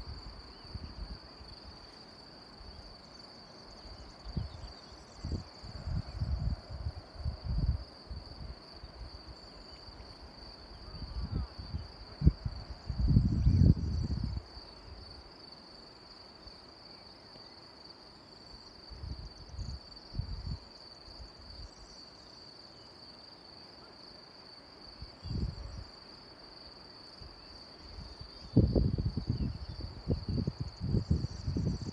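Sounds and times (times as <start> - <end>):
insects chirring: 0.0 - 31.9
wind buffeting microphone: 4.2 - 9.2, 10.8 - 15.1, 19.0 - 20.6, 25.2 - 25.8, 28.0 - 31.9.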